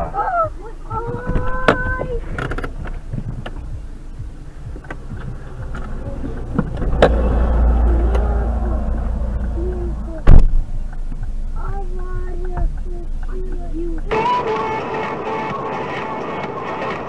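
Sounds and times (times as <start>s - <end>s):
car rumble: 0.0s - 17.0s.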